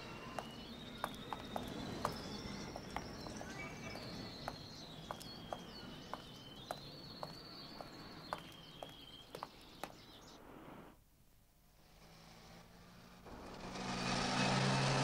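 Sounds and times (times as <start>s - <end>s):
footsteps on cobblestones: 0.0s - 10.3s
songbird warbling trill: 0.0s - 10.4s.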